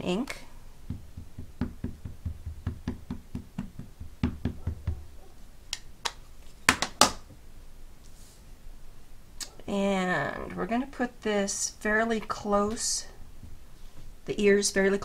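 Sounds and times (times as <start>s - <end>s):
ink pad tapping rubber stamp: 0.9s - 5.0s.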